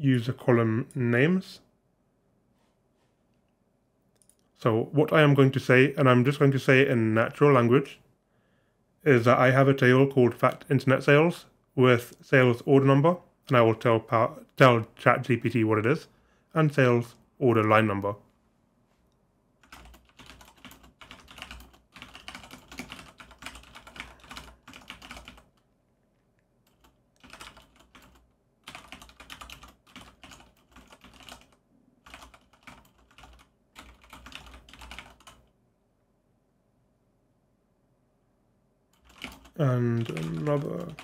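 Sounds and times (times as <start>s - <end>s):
computer keyboard typing: 19.6s - 25.6s, 26.6s - 35.5s, 39.0s - 41.0s.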